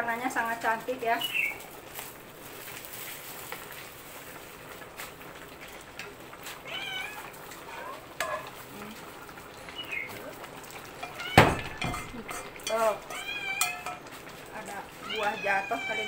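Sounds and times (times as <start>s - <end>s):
metal ladle stirring a pot: 7.5s - 8.6s, 10.7s - 14.7s.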